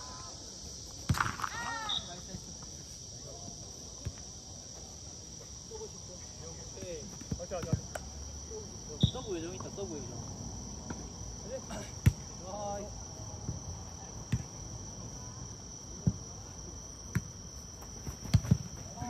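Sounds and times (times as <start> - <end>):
crickets chirring: 0.0 - 19.0
ball being kicked: 18.2 - 18.7.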